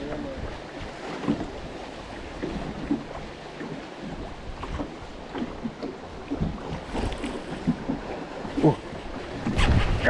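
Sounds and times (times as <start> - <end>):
waves lapping against boat hull: 0.0 - 10.0
wind buffeting microphone: 4.0 - 10.0.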